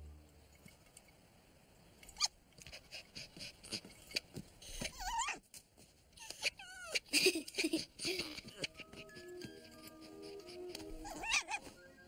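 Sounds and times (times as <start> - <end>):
cartoon dog whimpering: 4.7 - 5.4, 6.2 - 7.1, 8.0 - 11.8.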